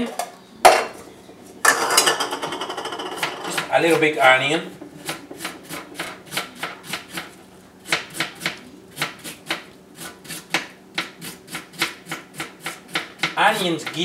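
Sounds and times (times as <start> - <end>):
knife chopping on cutting board: 5.0 - 14.0.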